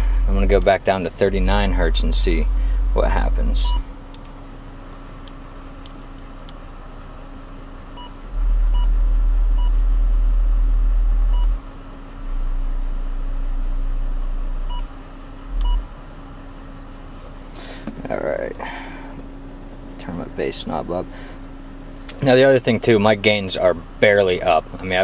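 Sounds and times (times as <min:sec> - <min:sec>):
deep bass test tone: 0:00.0 - 0:04.0, 0:08.0 - 0:11.6, 0:12.2 - 0:16.0.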